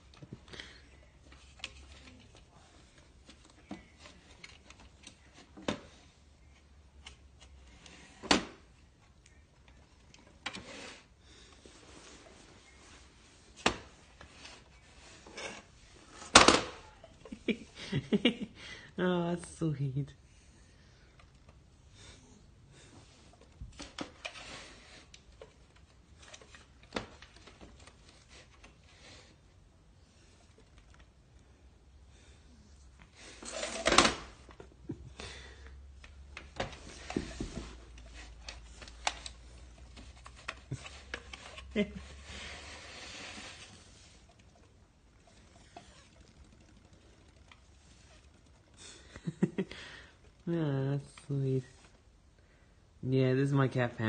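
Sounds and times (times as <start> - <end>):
rubbing scrape: 40.8 - 44.3.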